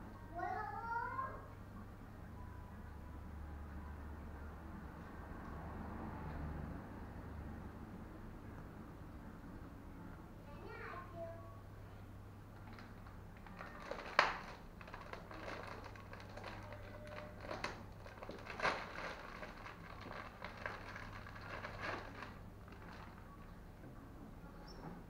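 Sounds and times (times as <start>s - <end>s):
sharp clicks and crackles: 12.6s - 23.2s.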